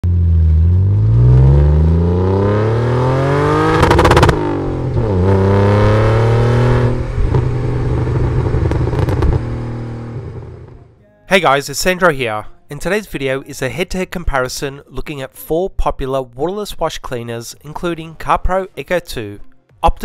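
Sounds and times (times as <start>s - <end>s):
car engine accelerating: 0.0s - 11.0s
exhaust crackle: 0.0s - 11.0s
exhaust pops: 3.6s - 5.8s, 6.6s - 10.8s.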